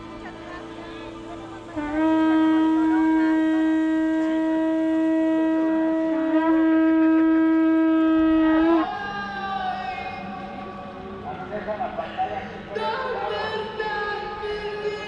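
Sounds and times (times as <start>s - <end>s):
conch shell trumpet blown: 0.1s - 10.4s.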